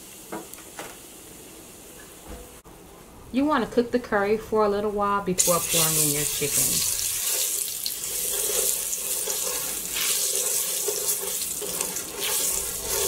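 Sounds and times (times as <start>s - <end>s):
oil sizzling in a pot: 0.0s - 2.3s, 5.4s - 13.0s
wooden spoon stirring: 6.5s - 13.0s.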